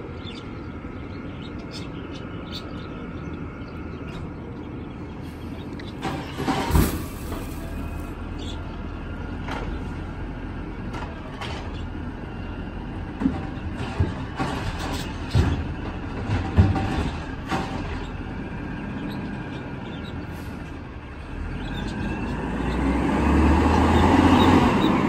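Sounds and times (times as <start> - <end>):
garbage truck running: 0.0 - 25.0
heavy clunk: 6.0 - 8.1.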